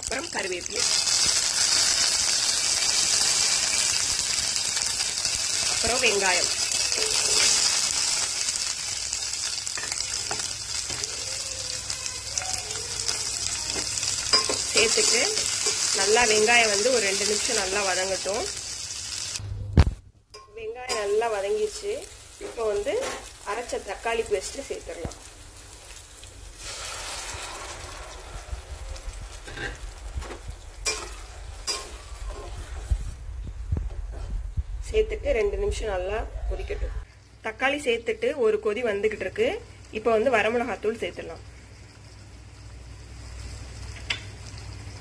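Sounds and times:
onions sizzling in hot oil: 0.0s - 19.4s, 20.6s - 33.2s, 37.2s - 45.0s.

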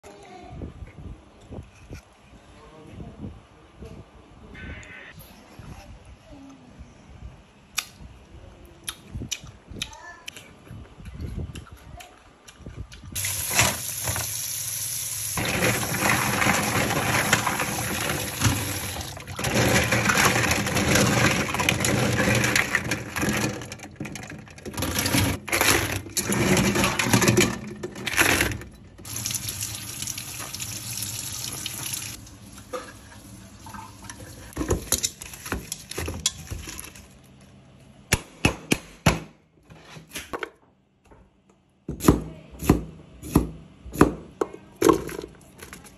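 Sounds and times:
tap water running into steel bowl: 29.0s - 34.3s.

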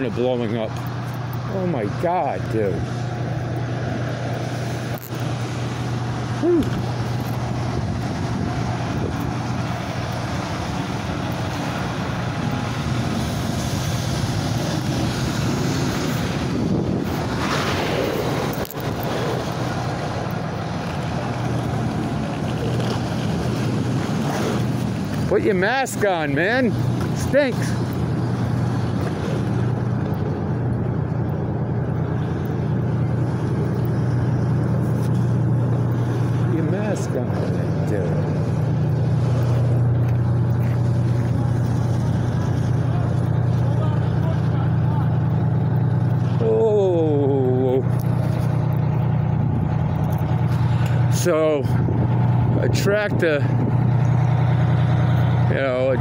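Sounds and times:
constant hum: 0.0s - 56.0s
vehicle engines droning: 0.0s - 56.0s.

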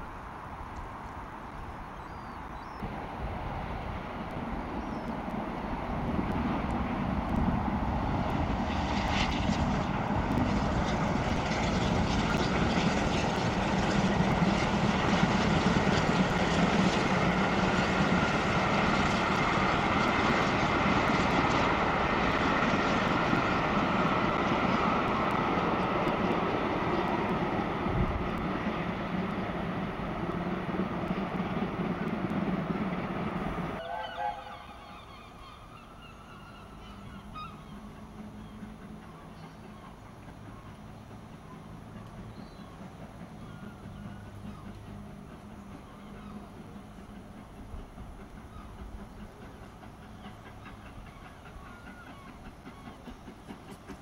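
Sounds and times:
steam locomotive rumbling: 2.8s - 54.0s
gulls calling: 33.8s - 40.9s.

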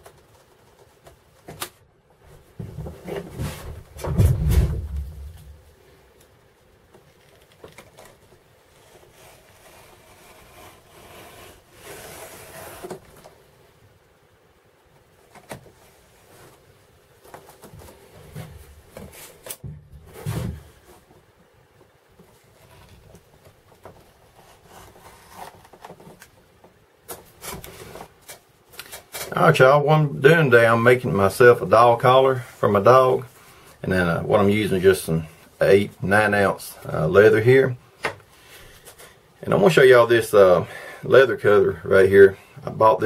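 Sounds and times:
knife cutting leather: 8.8s - 13.0s.

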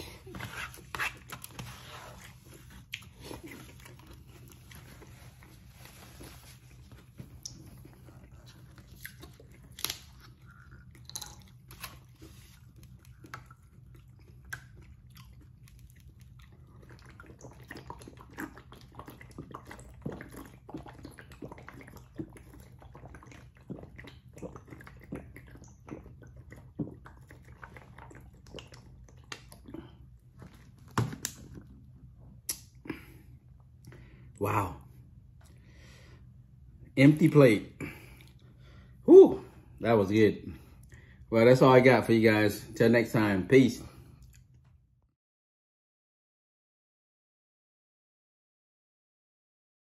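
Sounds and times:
swallowing sounds: 0.0s - 34.8s.

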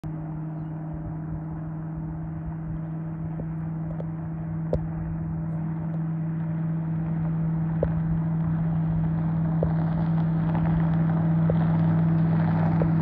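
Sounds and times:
distant powerboat engine drone: 0.0s - 13.0s.

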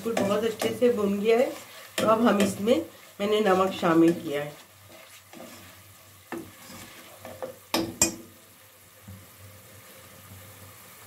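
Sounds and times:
spatula scraping a pot: 0.0s - 7.6s
soft sizzle of frying: 0.0s - 11.0s.

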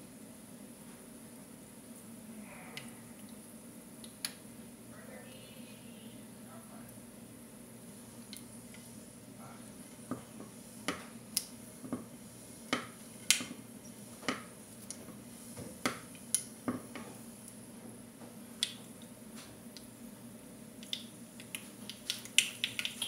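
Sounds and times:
seeds popping in hot oil: 10.0s - 17.6s, 20.7s - 23.0s.

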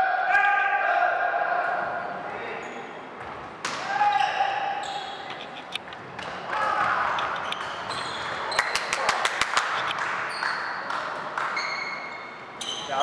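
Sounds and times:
shoes squeaking on floor: 4.0s - 5.8s, 7.2s - 8.8s, 11.6s - 13.0s.

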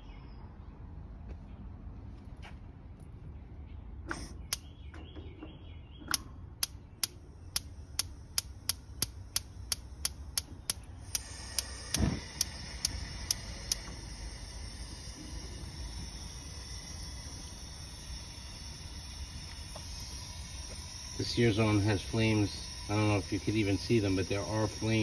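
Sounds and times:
gas grill igniter clicking: 4.1s - 4.7s, 6.1s - 15.1s
burner hissing: 6.6s - 25.0s.

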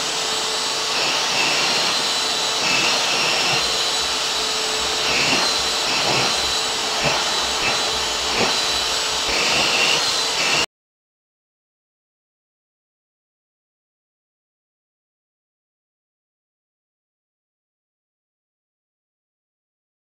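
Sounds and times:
vacuum cleaner running: 0.0s - 10.7s.

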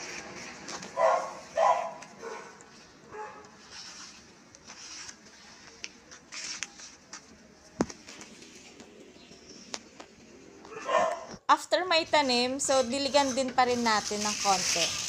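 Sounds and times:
dog barking: 1.0s - 3.5s, 10.7s - 11.3s.

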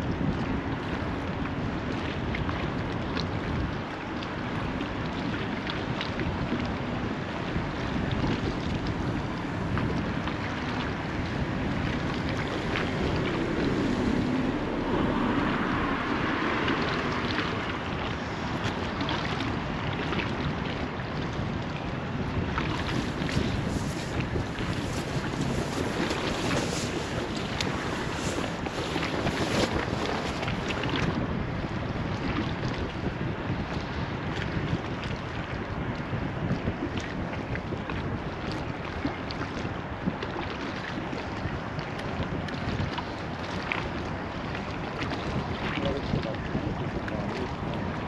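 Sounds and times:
wind on microphone: 0.0s - 48.0s
water washing: 7.6s - 31.3s.

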